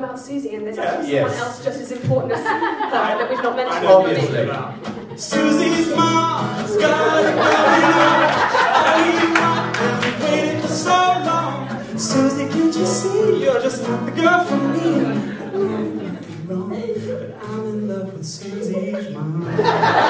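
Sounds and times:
acoustic guitar: 3.7 - 20.0
person singing into microphone: 5.2 - 19.9.

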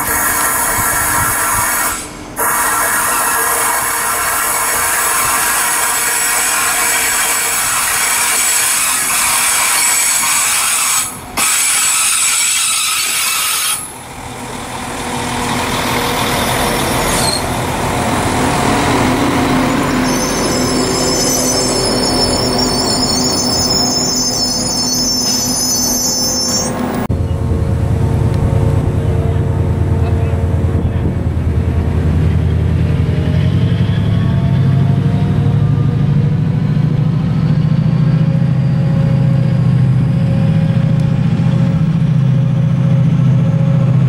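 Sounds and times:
passing train humming: 0.0 - 44.0
train wheels squealing: 0.3 - 14.0, 16.2 - 17.6, 19.3 - 27.4, 33.2 - 40.9.

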